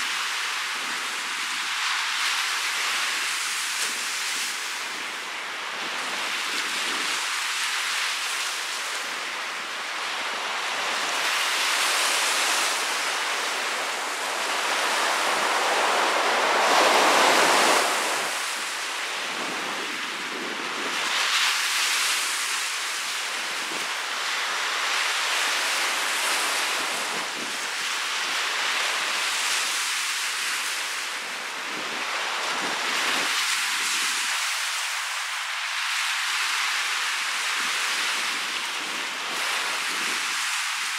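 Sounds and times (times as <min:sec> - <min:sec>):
waves washing up a beach: 0:00.0 - 0:40.9
wind on microphone: 0:03.1 - 0:07.4, 0:09.0 - 0:22.3, 0:31.3 - 0:34.5.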